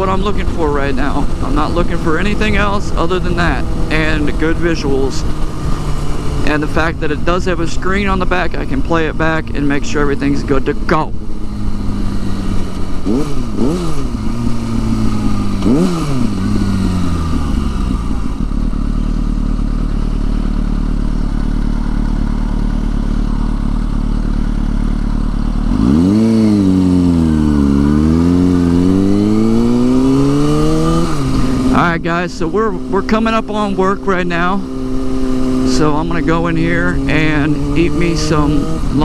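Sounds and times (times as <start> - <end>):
motorcycle engine revving: 0.0 - 39.0.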